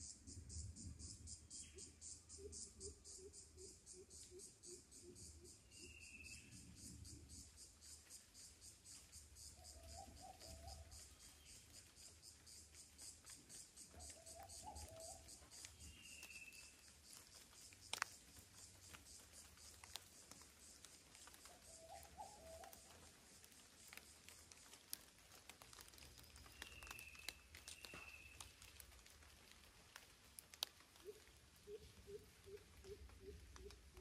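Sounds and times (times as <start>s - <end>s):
insect chirring: 0.0s - 34.0s
faint water drips: 7.9s - 34.0s.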